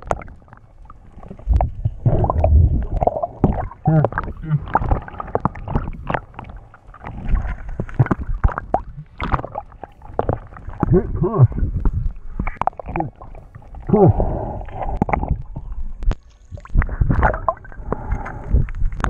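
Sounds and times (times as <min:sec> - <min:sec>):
muffled underwater gurgling: 0:00.0 - 0:19.0.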